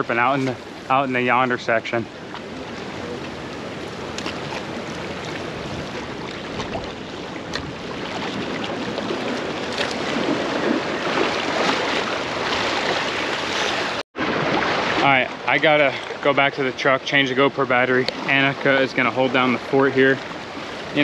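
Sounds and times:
steady wind: 0.0s - 21.0s
small waves washing against rocks: 2.4s - 15.0s.

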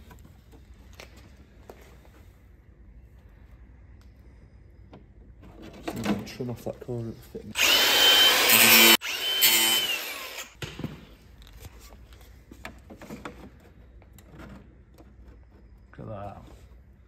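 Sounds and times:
angle grinder cutting: 7.6s - 10.6s.

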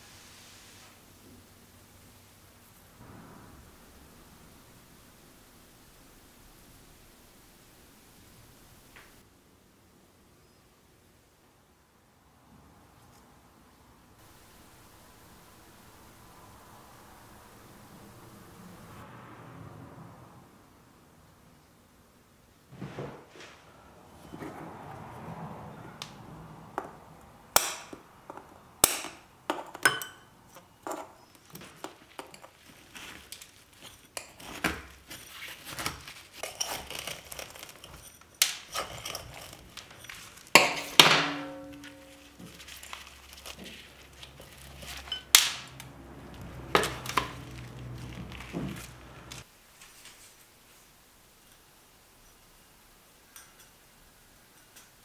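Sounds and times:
metal tools knocking ceramic pot: 27.6s - 32.5s, 36.4s - 42.6s
soil scraping and crumbling: 30.8s - 41.0s, 41.6s - 50.3s.

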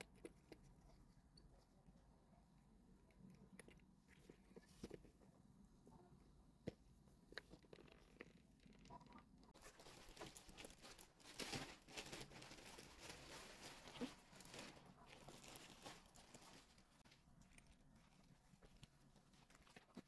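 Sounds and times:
small crackles and taps: 6.6s - 11.7s
plastic packaging crinkling: 9.6s - 20.0s.

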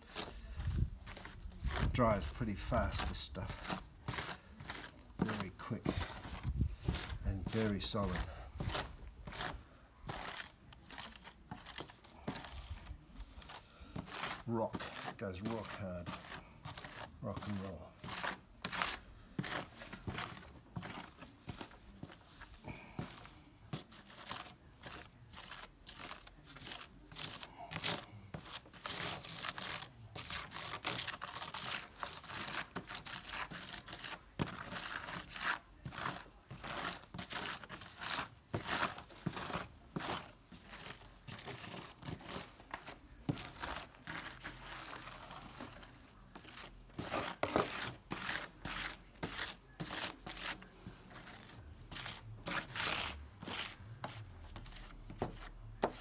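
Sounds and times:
tool scraping grout on tiles: 0.0s - 56.0s.

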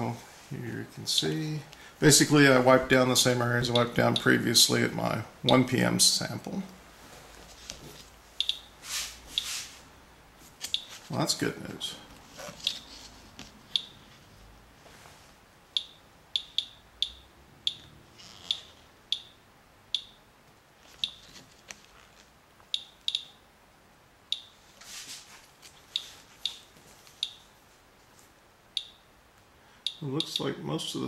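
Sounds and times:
geiger counter beeps: 8.4s - 8.7s, 15.8s - 17.9s, 18.5s - 20.2s, 22.8s - 23.4s, 28.8s - 29.0s, 29.8s - 30.5s.

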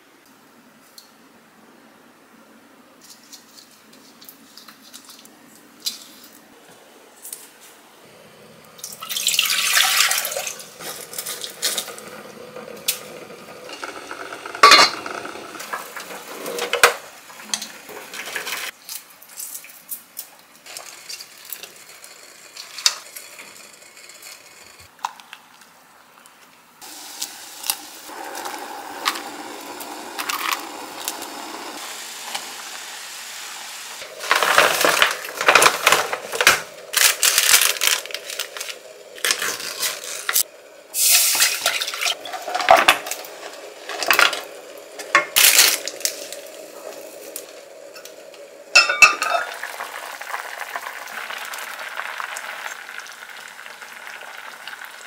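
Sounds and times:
tap water running in sink: 8.7s - 18.7s, 26.8s - 34.4s
utensils and dishes clinking: 9.2s - 18.7s, 48.8s - 49.8s
sauce cooking in pot: 26.8s - 55.0s.

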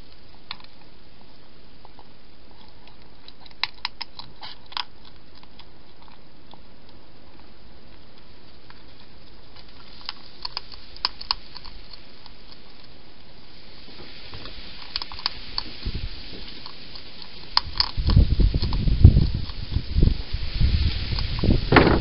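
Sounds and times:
hedgehog chewing and crunching: 0.0s - 22.0s
steady hiss: 6.2s - 22.0s
low bumps and rustles: 19.9s - 22.0s.

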